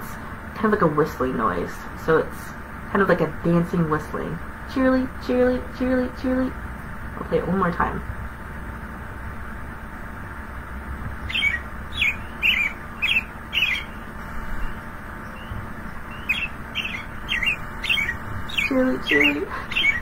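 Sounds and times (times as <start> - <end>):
robin song whistling: 11.2 - 20.0.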